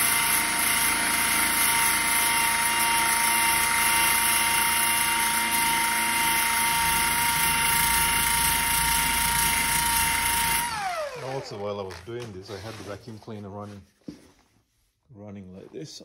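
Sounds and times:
rotary tool sanding with high whine: 0.0 - 13.0.

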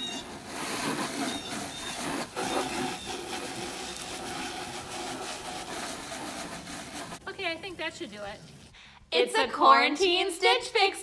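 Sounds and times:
hose nozzle spraying water: 0.0 - 8.8.

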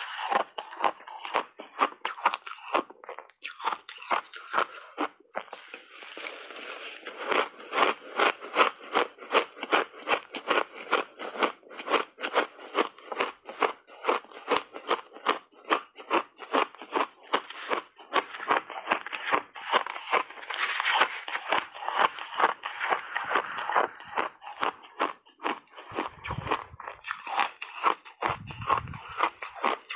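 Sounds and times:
shaved ice crunching: 5.6 - 7.5.

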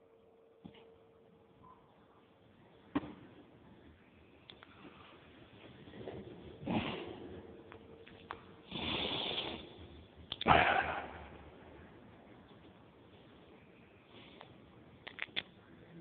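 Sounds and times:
person sniffing or sneezing: 8.7 - 9.7
small clicks: 14.4 - 15.5.

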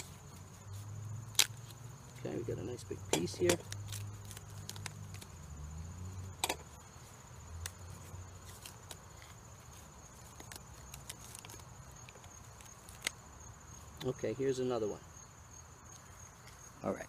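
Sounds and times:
high-pitched insect trill: 0.0 - 17.0
bark cracking and snapping: 1.2 - 1.7, 3.2 - 5.3, 10.2 - 13.2.

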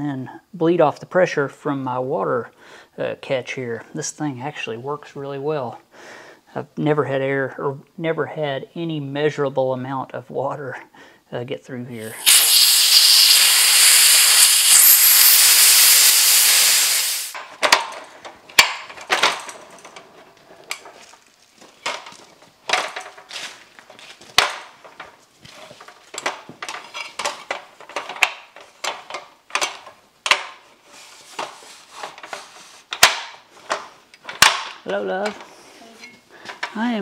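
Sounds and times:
compressed air hissing: 12.0 - 17.4.

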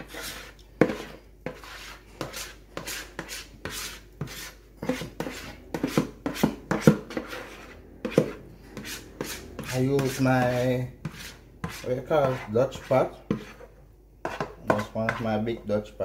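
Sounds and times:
spatula scraping a mixing bowl: 0.0 - 16.0
spatula knocking against a rim: 14.2 - 15.3.

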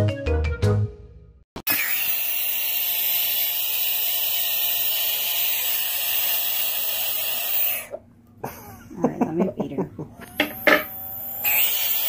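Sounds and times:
frog hissing shriek: 10.6 - 12.0.

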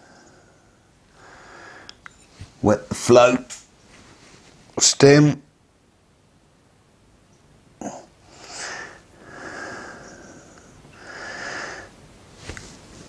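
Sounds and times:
man breathing through nose: 0.0 - 2.0, 8.3 - 12.0.

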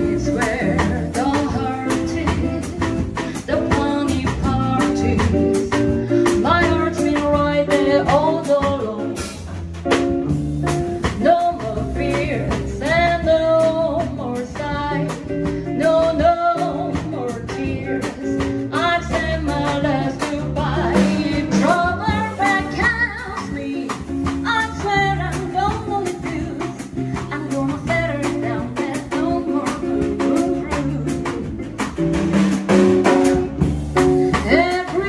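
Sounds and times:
woman singing: 0.0 - 9.4, 11.0 - 32.0, 34.2 - 35.0
upright bass walking: 0.0 - 35.0
drum kit cymbal time: 29.6 - 35.0.

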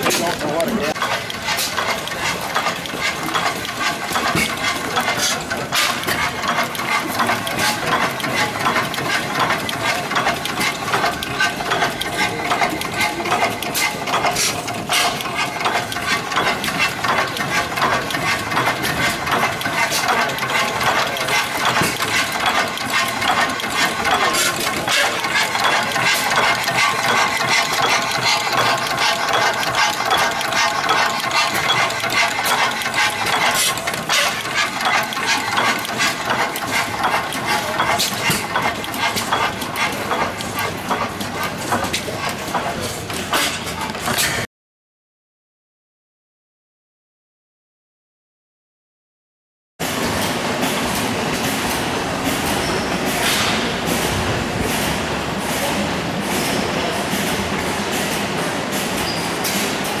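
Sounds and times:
engine mechanisms clicking: 0.0 - 44.4
stationary gas engines running: 0.0 - 44.4, 49.8 - 60.0.

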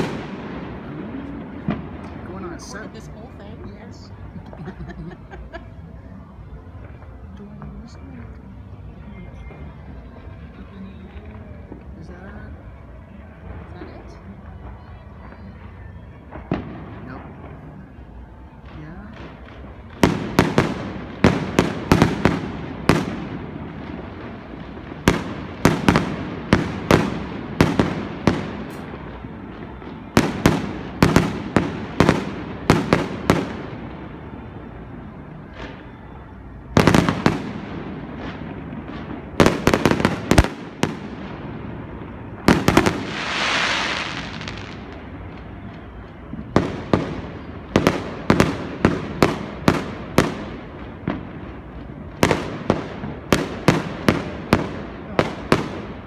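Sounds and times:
fireworks bangs: 0.0 - 56.0
firework hiss: 39.2 - 45.3.

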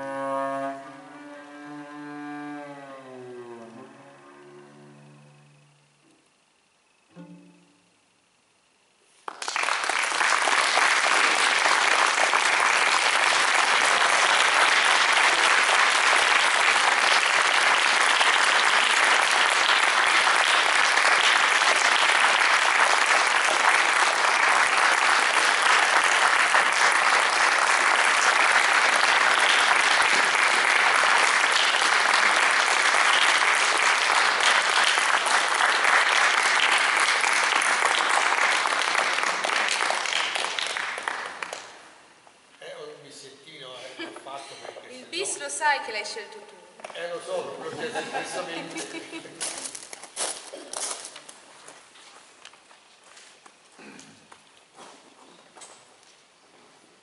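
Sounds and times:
audience applauding: 9.2 - 42.0.

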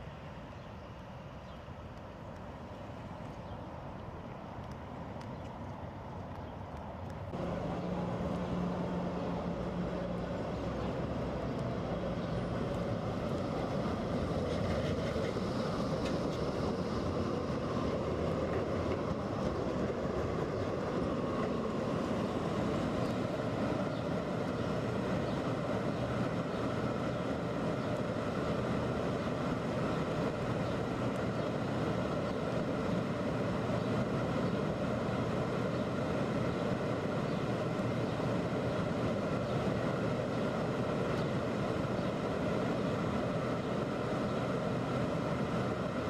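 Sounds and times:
tram wheels on rails: 1.3 - 46.0
low hum: 7.3 - 14.2.

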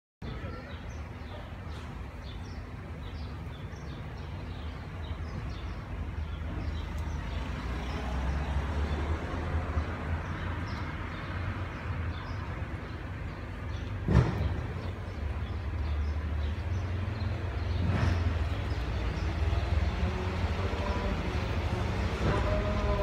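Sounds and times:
low traffic rumble: 0.2 - 23.0
small birds chirping: 0.2 - 23.0
vehicle passing: 6.2 - 23.0.

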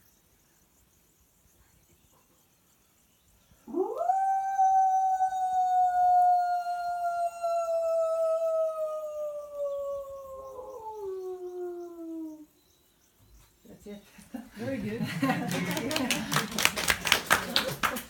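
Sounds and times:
person imitating wolf howl: 3.7 - 12.5.

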